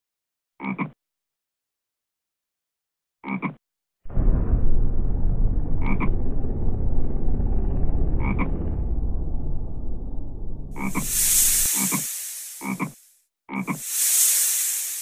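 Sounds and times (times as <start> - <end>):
frog croaking: 0.6 - 1.0, 3.2 - 3.6, 10.8 - 11.2, 12.6 - 13.8
continuous low rumble: 4.1 - 11.9.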